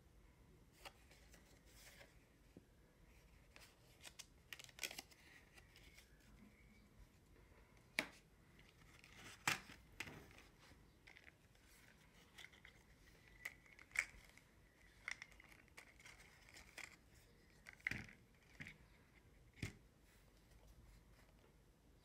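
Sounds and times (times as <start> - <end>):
card clicking and rustling: 3.5 - 6.2, 7.8 - 19.8.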